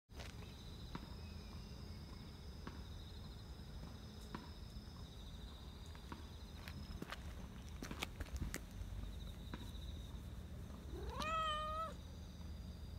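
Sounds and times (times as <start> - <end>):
insects trilling: 8.6 - 12.9.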